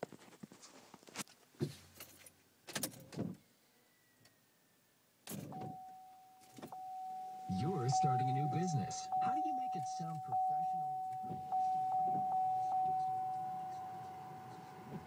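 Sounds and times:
electronic chime tone: 0:05.5 - 0:15.0.

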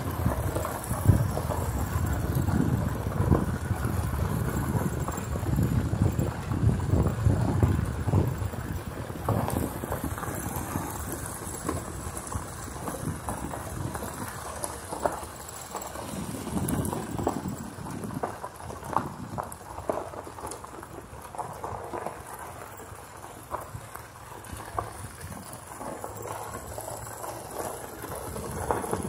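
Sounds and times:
wind on microphone: 0:00.0 - 0:15.2, 0:15.9 - 0:19.6
vehicle rumbling over rough surface: 0:00.0 - 0:29.0.

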